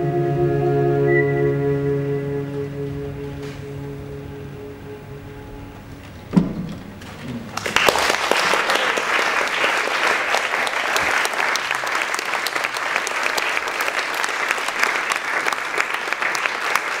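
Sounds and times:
audience applauding: 7.3 - 17.0.

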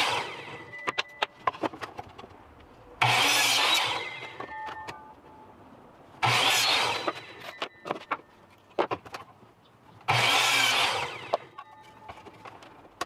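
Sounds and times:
miter saw cutting wood: 0.0 - 0.7, 3.0 - 4.4, 6.2 - 7.5, 10.1 - 11.6.

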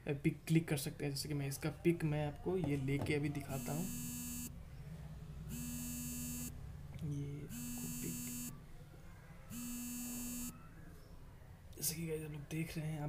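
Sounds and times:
buzzing tone: 3.6 - 4.5, 5.5 - 6.6, 7.4 - 8.6, 9.5 - 10.6.

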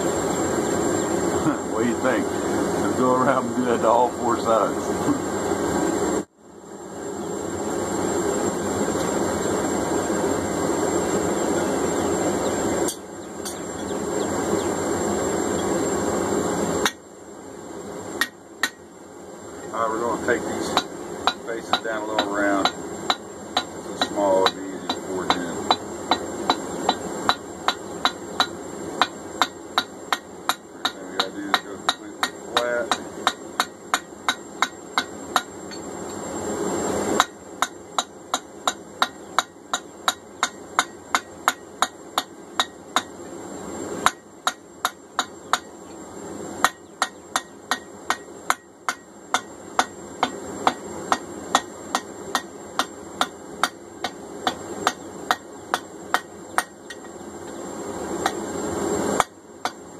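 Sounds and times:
hammer striking steel on anvil: 12.8 - 13.9, 18.2 - 18.8, 20.6 - 35.8, 37.2 - 43.2, 44.0 - 45.7, 46.6 - 57.1, 59.2 - 59.8.

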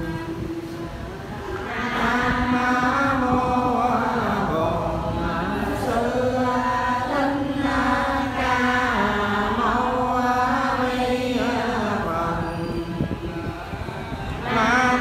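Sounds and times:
women chanting in unison: 0.0 - 15.0.

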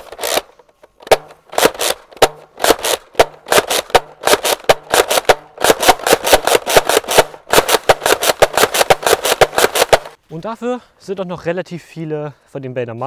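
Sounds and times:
toy blaster pumping and firing: 0.0 - 10.2.

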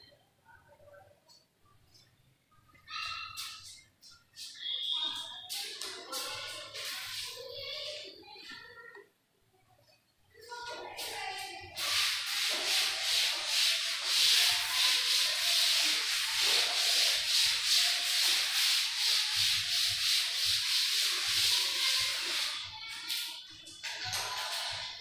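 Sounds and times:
cloth wiping chalkboard: 3.0 - 7.8, 11.0 - 25.0.

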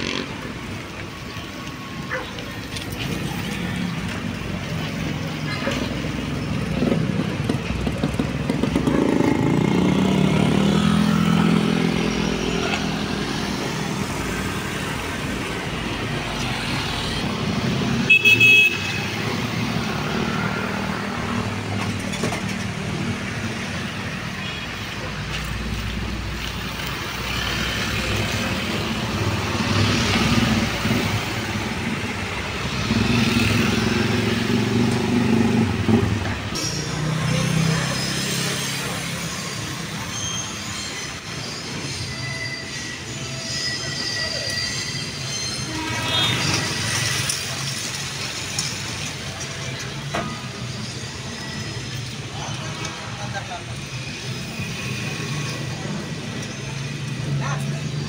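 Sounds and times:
street traffic: 0.0 - 58.0
car horn toot: 18.1 - 19.1.

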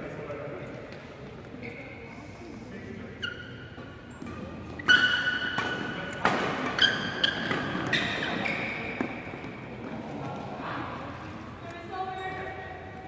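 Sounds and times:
court shoes squeaking on floor: 0.8 - 2.2, 2.8 - 10.4.

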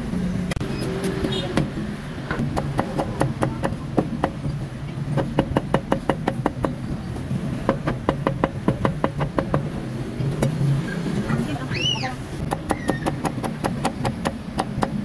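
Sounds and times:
cleaver chopping on wooden block: 2.4 - 4.4, 12.4 - 15.0.

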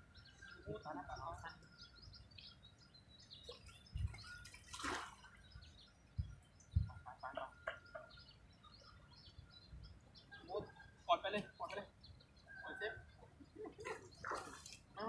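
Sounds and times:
small birds chirping: 0.0 - 15.0
fish splashing at water surface: 3.5 - 5.4, 13.9 - 14.9
dull low thumps: 6.1 - 7.1.

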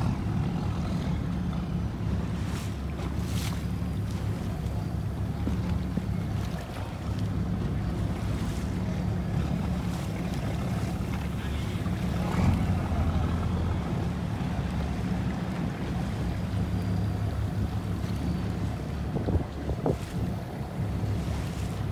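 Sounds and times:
boat engine droning: 0.0 - 21.9
water noise: 0.0 - 21.9
wind on microphone: 19.0 - 21.9.

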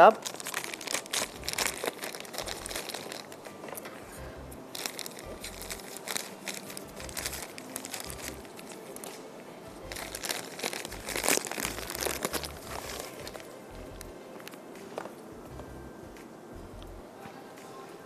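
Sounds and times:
plastic wrapper crinkling: 0.0 - 15.2
scissors cutting plastic: 0.2 - 3.9, 4.7 - 9.2, 9.9 - 13.5.

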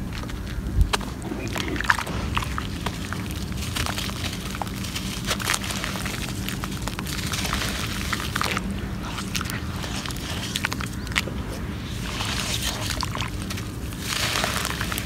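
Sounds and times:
damp dirt crumbling in hands: 0.0 - 15.0
crumbs dropping into water: 0.1 - 11.3.

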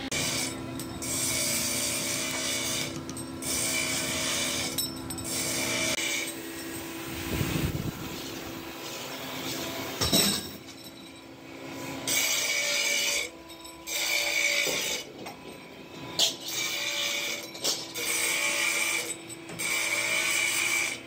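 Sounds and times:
metal parts clattering: 10.0 - 11.2.

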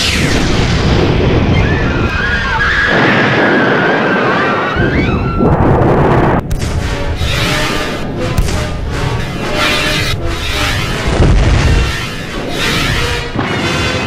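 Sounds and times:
gliding high whines: 0.0 - 3.0, 6.7 - 13.9
loud dense rumble: 0.0 - 14.0.

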